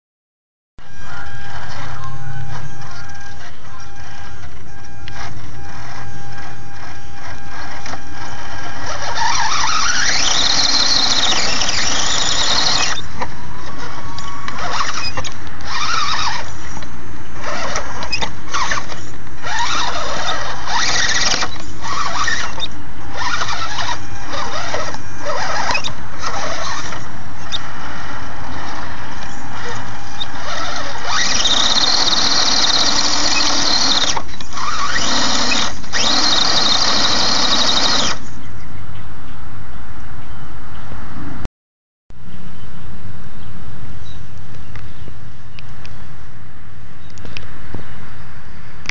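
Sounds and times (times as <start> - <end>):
electric winch motor whine: 0.8 - 38.8.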